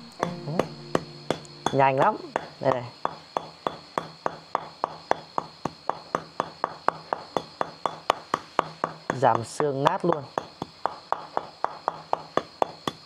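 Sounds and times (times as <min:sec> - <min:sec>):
glass bottle pounding meat on board: 0:00.2 - 0:13.0.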